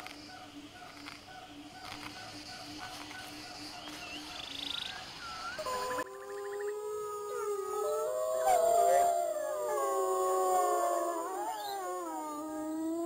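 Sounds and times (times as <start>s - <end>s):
dogs howling together: 5.6s - 13.0s.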